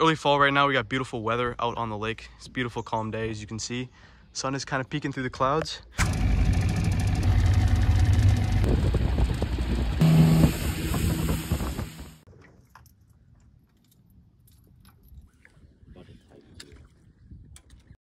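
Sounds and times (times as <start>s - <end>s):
outboard motor running loudly: 6.0s - 12.2s.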